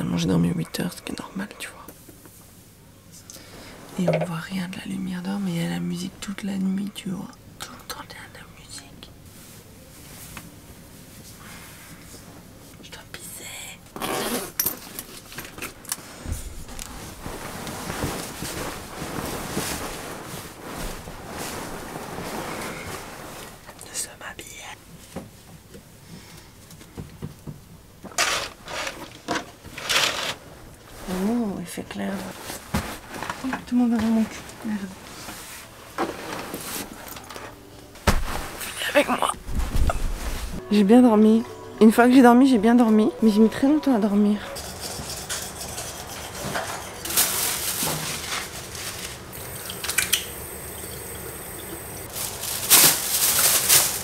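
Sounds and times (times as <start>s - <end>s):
fabric curtain swishing: 16.9s - 23.6s, 38.0s - 40.6s
soft knocks in wooden bunk: 38.0s - 38.5s.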